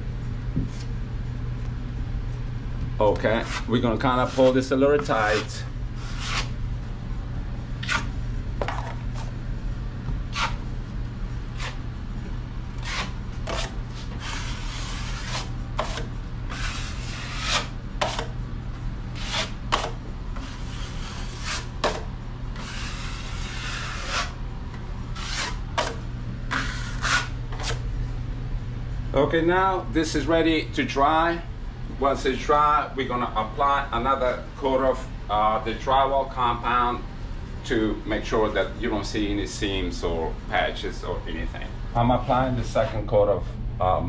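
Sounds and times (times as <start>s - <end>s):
drywall knife scraping: 3.2s - 6.5s, 7.8s - 8.1s, 10.3s - 10.6s, 11.5s - 11.8s, 12.8s - 18.3s, 19.2s - 24.4s, 25.1s - 27.8s.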